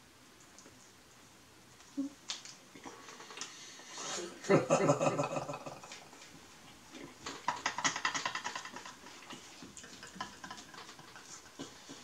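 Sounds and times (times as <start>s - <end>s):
small crackly clicks: 0.4s - 1.0s, 1.8s - 2.6s.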